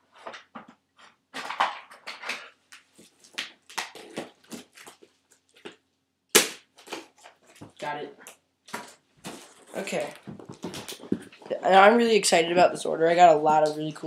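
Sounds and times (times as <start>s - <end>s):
rummaging rustles and clatters: 0.0s - 3.4s, 8.7s - 11.5s.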